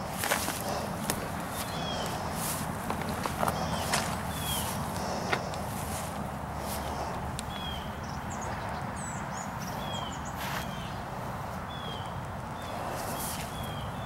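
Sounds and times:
soft footfalls: 0:00.0 - 0:06.9
steady rustling hiss: 0:00.0 - 0:08.5
birds chirping: 0:00.0 - 0:14.0
high bird twittering: 0:01.5 - 0:02.4, 0:03.4 - 0:05.3, 0:06.8 - 0:11.0.

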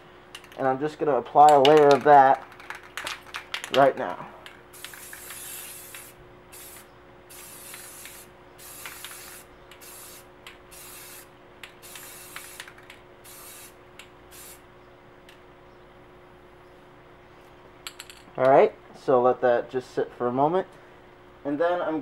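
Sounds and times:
faint steady hum: 0:00.0 - 0:22.0
spray paint can hissing: 0:04.7 - 0:14.6.

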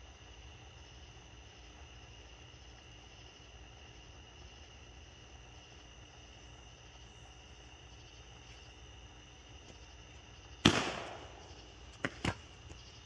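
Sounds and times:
crickets chirping: 0:00.0 - 0:13.0
firework bang: 0:10.6 - 0:11.7
small firework pops: 0:10.6 - 0:12.9.

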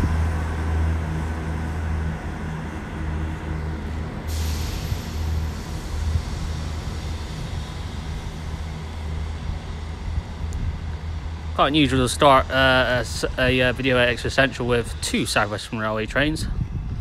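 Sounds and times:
diesel train engines droning: 0:00.0 - 0:17.0
hiss: 0:04.2 - 0:10.4.

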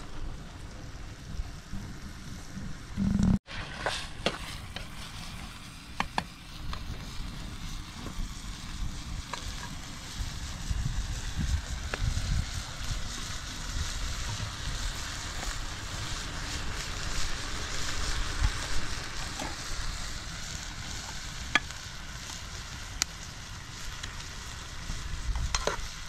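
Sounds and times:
low rumble: 0:00.0 - 0:03.4
food sizzling in pot: 0:00.0 - 0:26.0.

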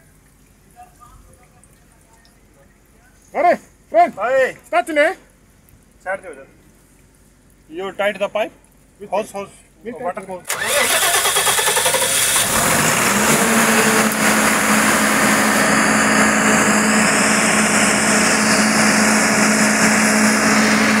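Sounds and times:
diesel generator engine running: 0:10.5 - 0:21.0
steady hum: 0:12.4 - 0:21.0.

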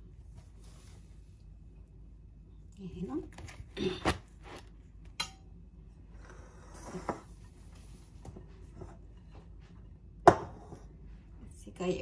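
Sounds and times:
soft rustle: 0:00.2 - 0:01.6.

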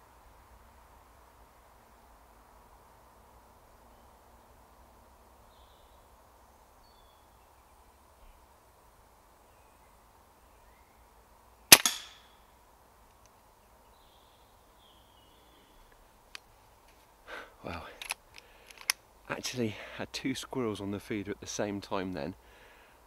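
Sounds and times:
air rifle shot: 0:11.7 - 0:12.2.

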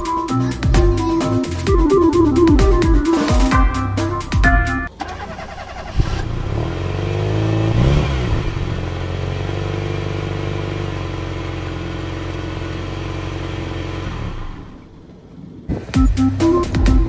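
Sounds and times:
car engine pulling away: 0:04.9 - 0:16.6.

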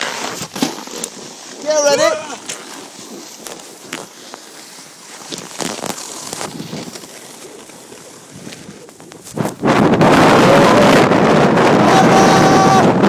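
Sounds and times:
skis scraping over packed snow: 0:00.0 - 0:13.0
wind noise on microphone: 0:05.3 - 0:13.0.

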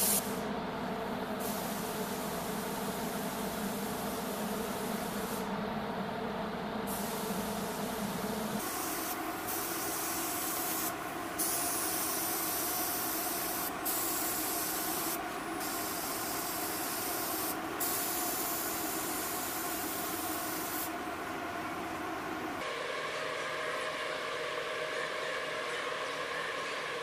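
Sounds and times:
paint spray gun hissing: 0:00.0 - 0:00.4, 0:01.4 - 0:05.5, 0:08.6 - 0:21.0
ventilation machine hum: 0:00.0 - 0:27.0.

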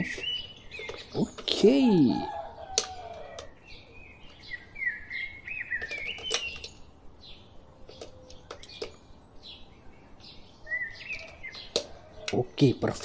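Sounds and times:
birds chirping: 0:00.0 - 0:13.0
plastic clicks of batteries: 0:02.6 - 0:03.6, 0:05.8 - 0:06.8, 0:07.8 - 0:09.0, 0:11.0 - 0:12.4.

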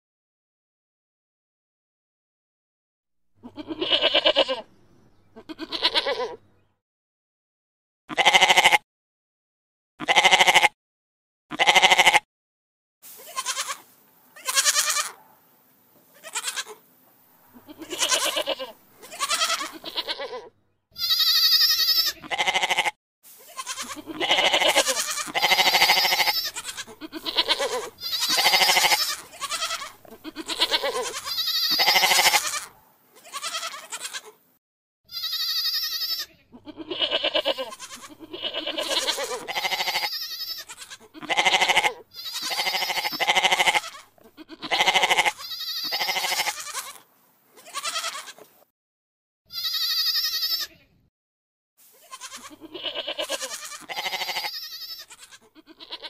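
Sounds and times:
goats bleating: 0:03.4 - 0:04.7, 0:05.3 - 0:06.4, 0:08.1 - 0:08.8, 0:10.0 - 0:10.8, 0:11.5 - 0:12.2, 0:13.1 - 0:15.2, 0:16.1 - 0:16.8, 0:17.5 - 0:34.4, 0:35.1 - 0:47.0, 0:47.6 - 0:48.5, 0:49.5 - 0:50.9, 0:52.0 - 0:56.0.

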